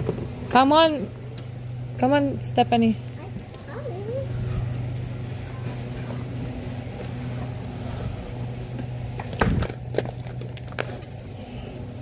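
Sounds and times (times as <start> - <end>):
warehouse store hum: 0.0 - 12.0
coffee bag handling noise: 9.0 - 12.0.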